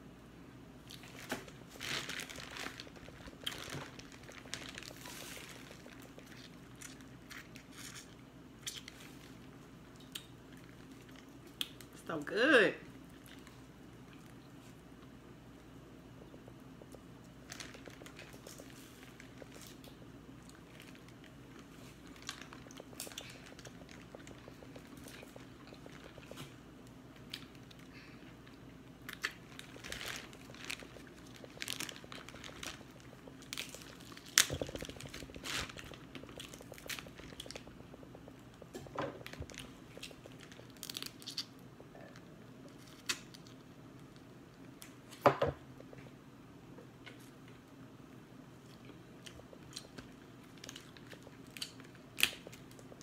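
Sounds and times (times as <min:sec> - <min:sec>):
plastic bag crinkling: 0:00.9 - 0:08.2, 0:17.4 - 0:26.6, 0:27.2 - 0:41.5
chewing and sucking: 0:16.2 - 0:42.2
crab shells cracking: 0:29.1 - 0:41.5.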